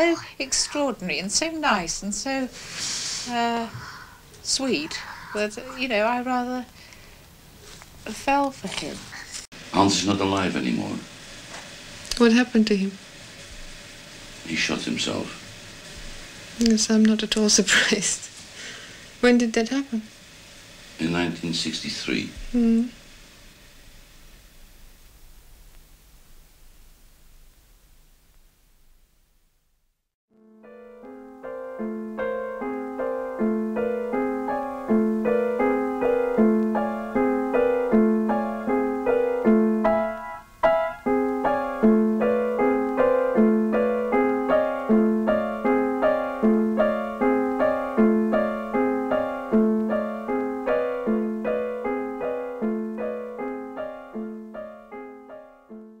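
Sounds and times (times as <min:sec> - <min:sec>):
slow solo piano piece: 0:30.4 - 0:56.0.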